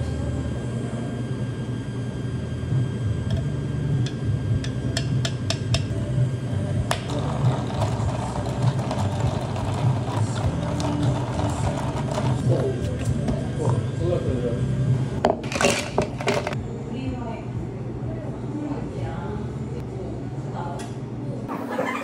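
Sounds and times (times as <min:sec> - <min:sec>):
low hum: 0:00.0 - 0:15.2
liquid pouring: 0:06.9 - 0:12.4.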